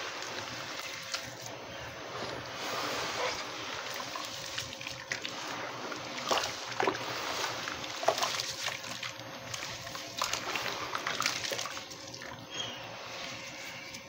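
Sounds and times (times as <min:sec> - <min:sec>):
crunches and splashes: 0:00.0 - 0:14.0
wet cement sloshing in water: 0:00.0 - 0:14.0.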